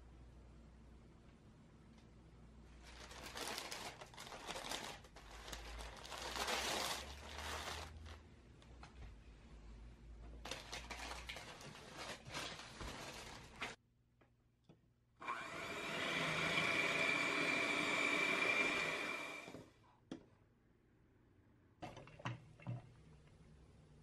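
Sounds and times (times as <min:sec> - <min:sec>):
parchment paper rustling: 0:02.8 - 0:08.2, 0:10.4 - 0:13.8
electric hand mixer whining: 0:15.2 - 0:19.6.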